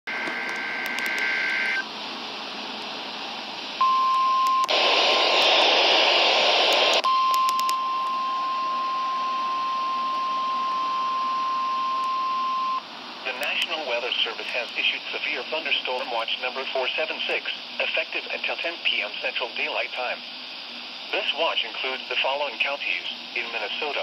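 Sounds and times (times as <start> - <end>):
loud radio static: 4.7 - 7.1, 9.6 - 20.4, 21.0 - 24.0
radio hiss: 4.7 - 7.1, 8.0 - 24.0.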